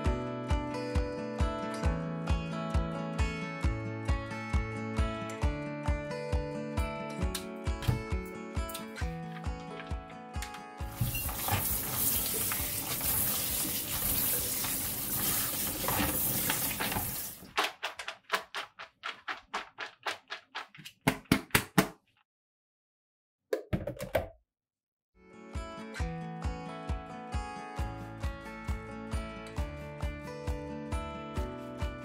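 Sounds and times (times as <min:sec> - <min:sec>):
tap water running into colander: 0:10.9 - 0:17.5
colander shaken rattling: 0:10.9 - 0:20.8.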